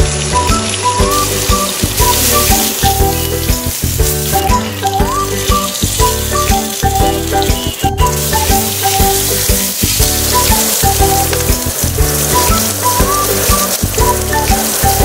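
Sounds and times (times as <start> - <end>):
aubergine sizzling in oil: 0.0 - 15.0
background music with held notes: 0.0 - 15.0.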